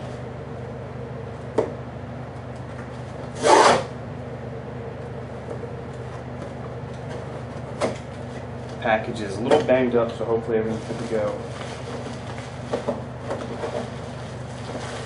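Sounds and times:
steady low hum: 0.0s - 15.0s
cardboard or tape scraping rasp: 3.3s - 3.9s.

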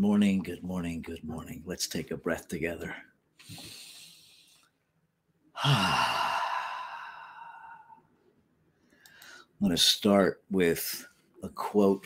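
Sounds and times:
man breathing deeply: 3.4s - 4.7s, 5.6s - 8.1s.

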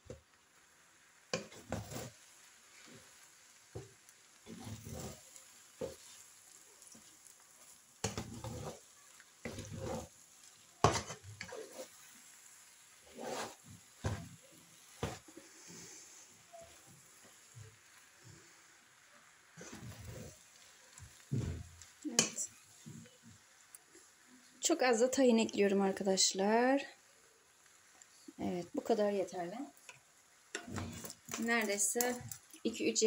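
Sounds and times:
faint sizzle: 0.0s - 33.0s
spatula scraping a frying pan: 1.3s - 18.6s, 19.5s - 23.1s, 30.5s - 32.6s.

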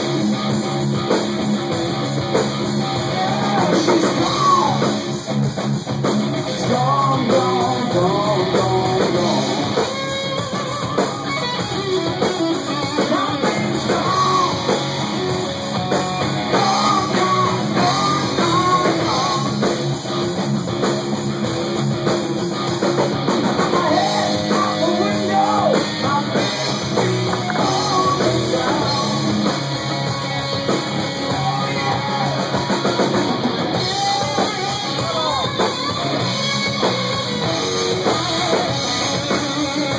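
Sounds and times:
drum kit: 0.0s - 39.9s
electric guitar: 0.0s - 39.9s
man singing: 2.8s - 5.1s, 6.4s - 10.0s, 12.7s - 15.0s, 16.3s - 19.8s, 23.6s - 29.6s, 31.1s - 33.2s, 33.8s - 36.8s, 37.4s - 39.9s.

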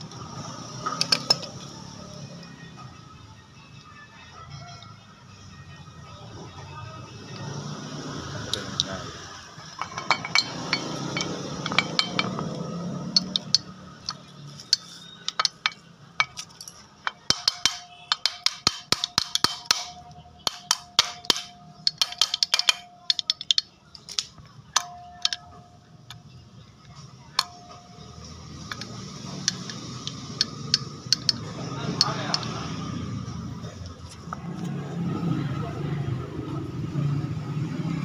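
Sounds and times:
metallic tool clinks: 9.8s - 26.4s, 27.3s - 32.6s.

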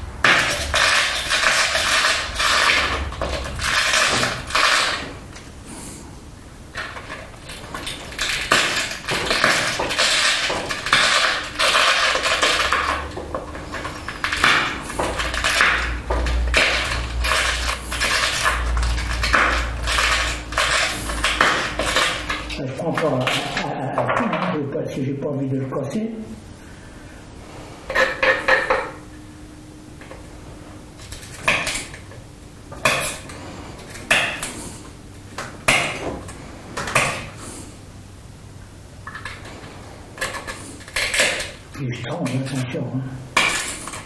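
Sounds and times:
glass crunching and scraping: 0.2s - 5.6s, 6.7s - 24.5s, 31.0s - 37.7s, 39.0s - 44.0s
glass flakes snapping: 0.2s - 5.6s, 6.7s - 24.3s, 39.0s - 42.6s, 43.4s - 44.0s.

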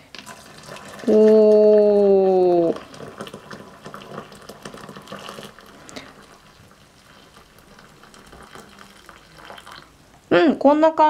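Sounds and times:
water pouring into metal pot: 0.1s - 10.0s.

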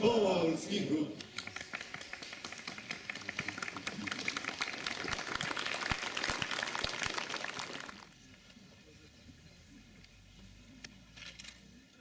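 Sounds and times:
crowd applauding: 1.2s - 8.2s.

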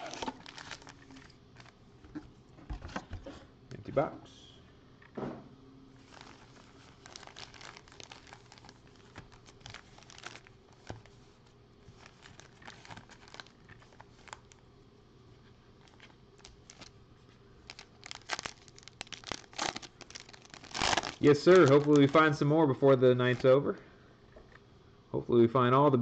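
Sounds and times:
foil pack tearing open: 0.0s - 1.7s, 6.1s - 11.0s, 12.0s - 14.6s, 15.8s - 16.9s, 17.6s - 22.4s
foil wrappers crinkling: 0.0s - 1.8s, 6.0s - 14.6s, 15.8s - 17.0s, 17.6s - 22.5s.

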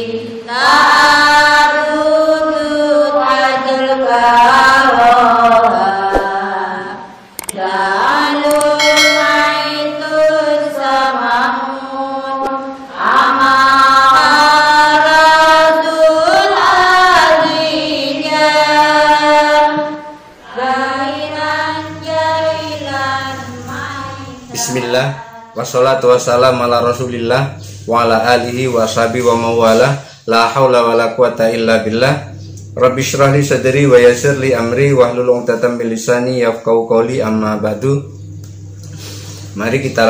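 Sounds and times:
low sustained drone: 8.8s - 10.8s, 19.9s - 40.0s.

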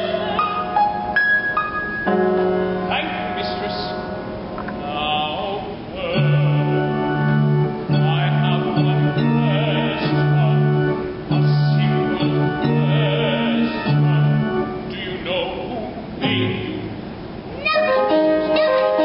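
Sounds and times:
sustained low instrumental chords: 0.0s - 14.9s
operatic singing with vibrato: 0.0s - 19.0s.

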